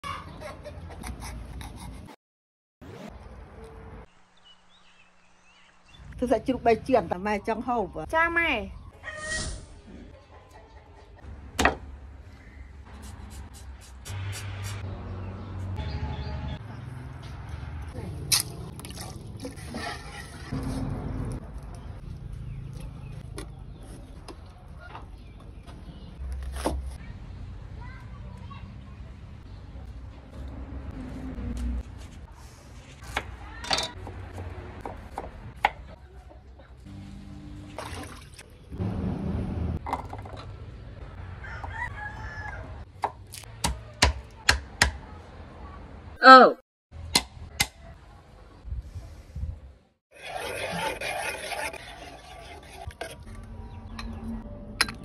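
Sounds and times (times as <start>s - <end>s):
rooster crowing: 41.1s - 42.8s.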